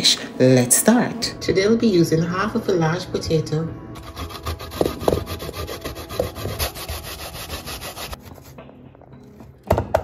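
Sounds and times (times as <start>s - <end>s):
grating on metal grater: 4.0s - 8.2s.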